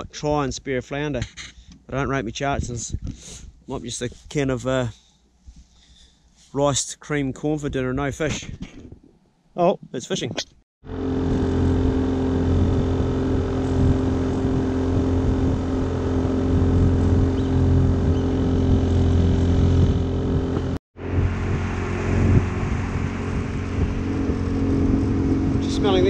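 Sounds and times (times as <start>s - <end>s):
outboard motor running: 10.8s - 26.0s
water rushing along hull: 10.9s - 26.0s.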